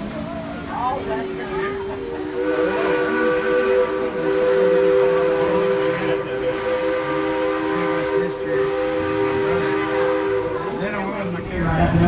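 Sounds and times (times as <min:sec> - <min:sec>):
steam locomotive chime whistle: 0:01.2 - 0:10.8.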